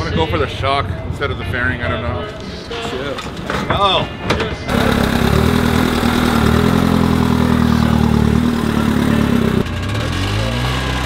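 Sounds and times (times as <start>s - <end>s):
motorcycle engine idling: 4.7s - 11.0s.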